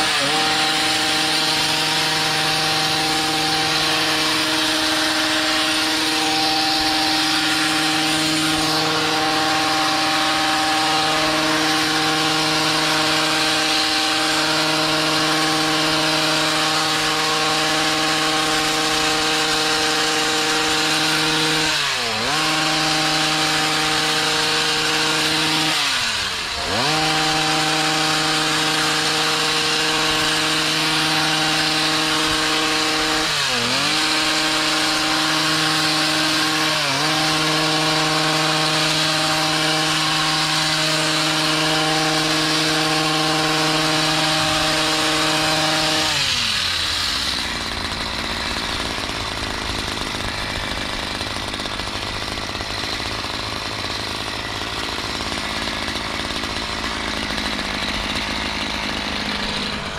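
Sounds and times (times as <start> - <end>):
hedge trimmer engine cutting: 0.0 - 59.9.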